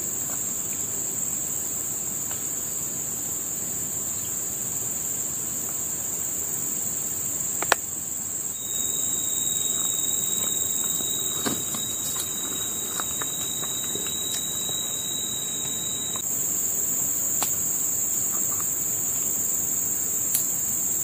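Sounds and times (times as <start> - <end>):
insects high-pitched drone: 0.0 - 21.0
lower insect tone: 0.0 - 21.0.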